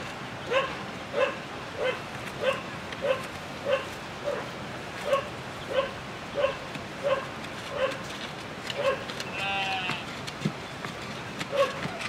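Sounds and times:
dog barking: 0.5s - 8.0s, 8.8s - 9.1s, 11.5s - 11.9s.

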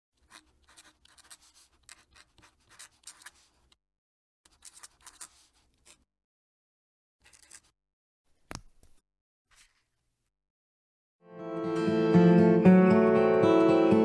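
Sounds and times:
pen nib scratching on paper: 0.2s - 3.8s, 4.5s - 6.1s.

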